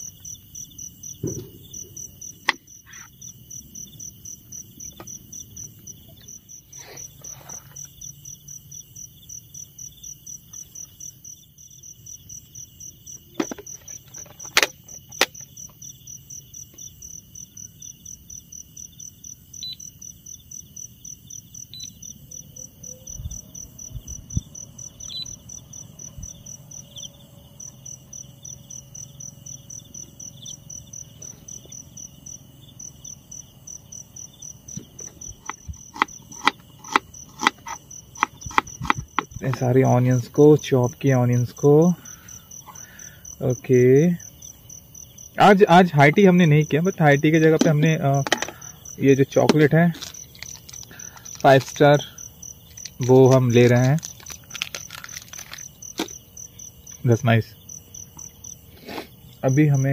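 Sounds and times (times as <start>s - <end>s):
insect drone: 0.0s - 59.9s
insects chirping in pulsing trill: 0.0s - 59.9s
sharp clicks or knocks: 1.2s - 2.7s, 13.4s - 15.4s, 34.7s - 39.6s, 47.6s - 48.6s.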